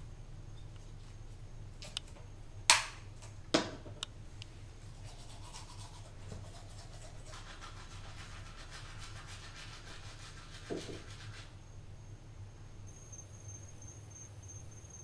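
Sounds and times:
toothbrush scrubbing teeth: 4.8s - 11.5s.

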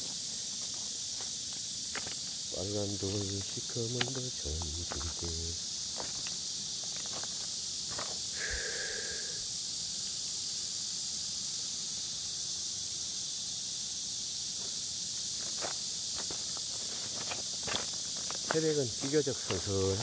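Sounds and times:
footsteps crunching on stones: 0.0s - 2.4s, 3.0s - 8.3s, 14.6s - 20.0s
high-pitched insect chorus: 0.0s - 20.0s.

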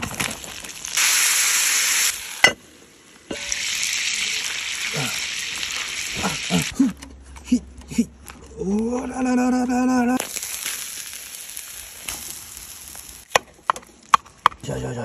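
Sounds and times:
potatoes sizzling in hot oil: 0.0s - 6.7s, 10.2s - 13.3s.

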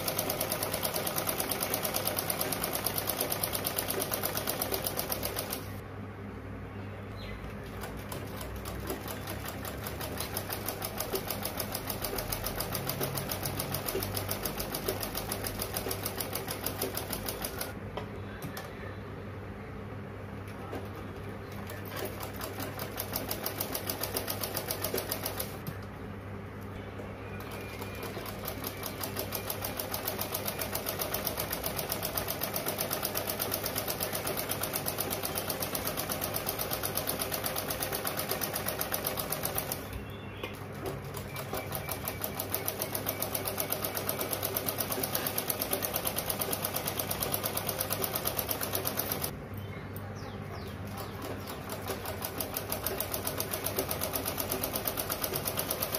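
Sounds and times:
sewing machine stitching: 0.0s - 5.8s, 7.8s - 17.8s, 27.4s - 39.9s, 40.8s - 49.3s, 51.0s - 55.9s.

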